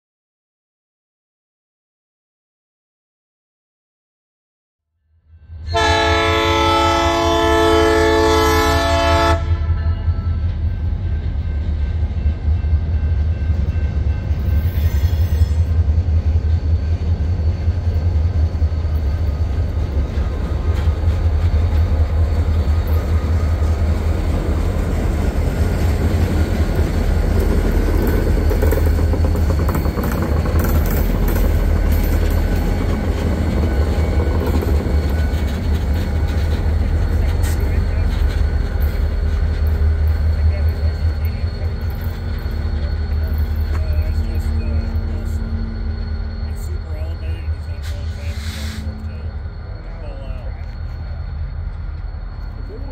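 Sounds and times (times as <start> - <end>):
locomotive air horn blast: 5.6 - 10.3, 48.1 - 49.0.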